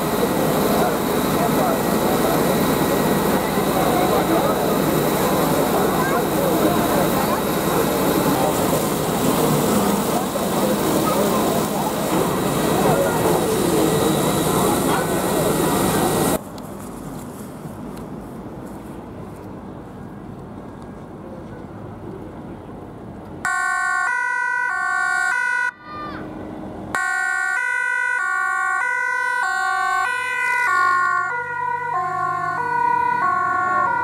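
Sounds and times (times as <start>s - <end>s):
ambulance two-tone siren: 23.4s - 25.8s, 26.9s - 34.0s.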